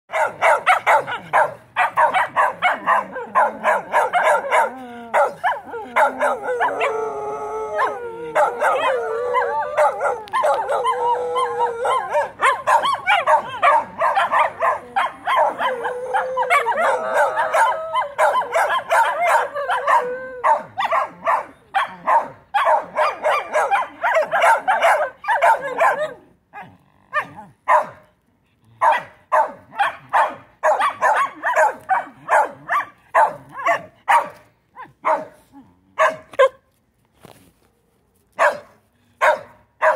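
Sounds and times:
dogs barking: 0:00.1 - 0:07.0, 0:07.8 - 0:28.0, 0:28.8 - 0:35.4, 0:36.0 - 0:36.6, 0:38.4 - 0:39.9
dogs howling: 0:02.0 - 0:26.2.

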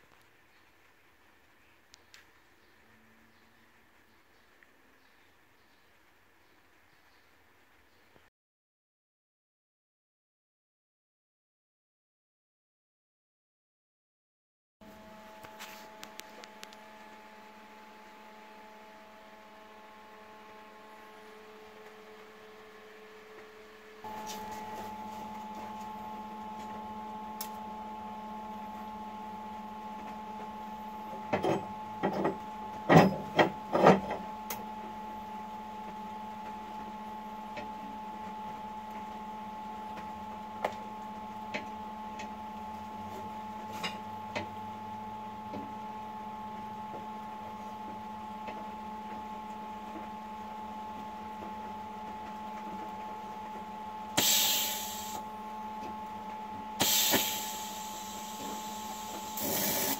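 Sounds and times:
steady electrical hum: 0:14.8 - 0:59.9
short hiss: 0:54.2 - 0:55.2, 0:56.8 - 0:58.3, 0:59.3 - 0:59.9.

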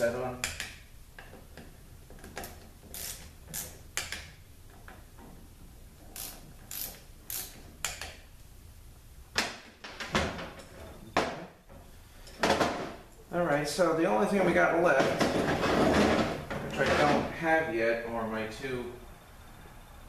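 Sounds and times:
torque wrench clicking: 0:02.4 - 0:04.3, 0:06.2 - 0:08.2.

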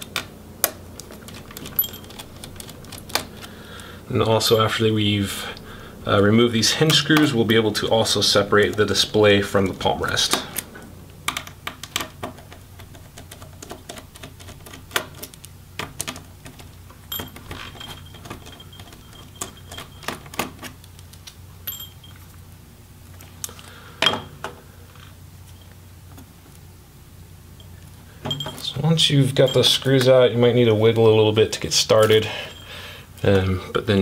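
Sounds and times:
screwdriver and screws clicking: 0:00.0 - 0:03.9.

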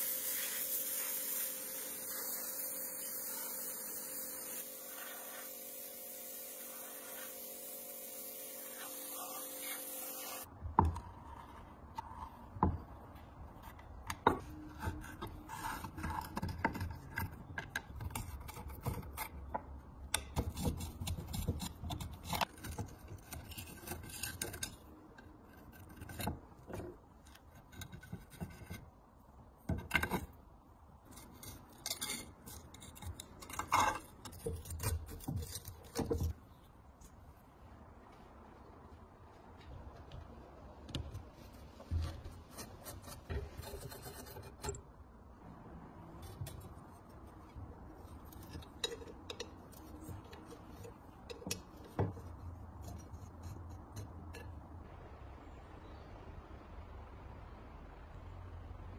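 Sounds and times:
knife scraping rust: 0:20.3 - 0:29.0, 0:31.0 - 0:36.5, 0:42.2 - 0:45.0, 0:46.1 - 0:54.6.

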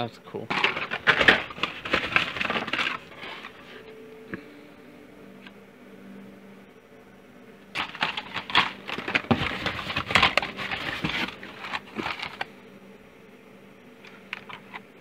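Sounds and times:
blister packs clattering and crinkling: 0:00.4 - 0:03.9, 0:07.7 - 0:12.6, 0:14.1 - 0:14.9.

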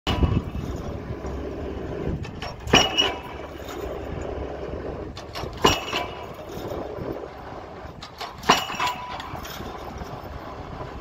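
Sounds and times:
excavator engine running: 0:00.1 - 0:11.0
pile hammer blows with metallic ring: 0:02.2 - 0:04.1, 0:05.2 - 0:07.2, 0:08.0 - 0:10.4.

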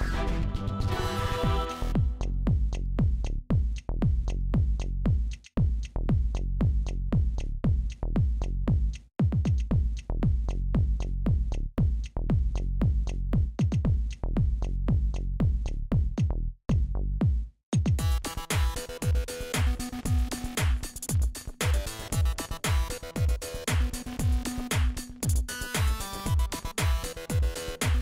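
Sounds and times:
electronic dance music: 0:00.0 - 0:02.2, 0:18.0 - 0:28.0.

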